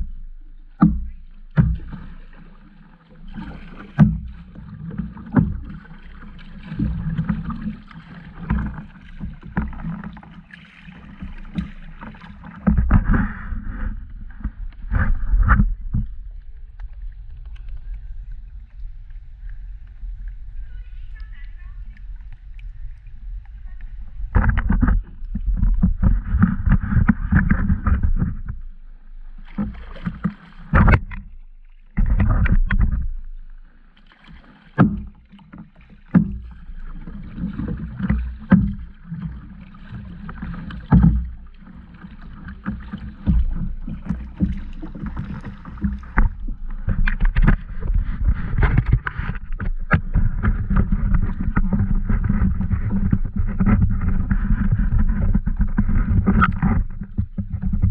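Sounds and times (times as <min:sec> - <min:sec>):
paddle strokes splashing: 0:00.0 - 0:57.9
water sloshing against hull: 0:00.0 - 0:57.9
sharp knocks on hull: 0:00.8 - 0:02.3, 0:03.6 - 0:05.8, 0:24.3 - 0:28.6, 0:29.5 - 0:31.3, 0:31.9 - 0:33.2, 0:34.7 - 0:39.0, 0:40.3 - 0:41.5, 0:42.5 - 0:57.9.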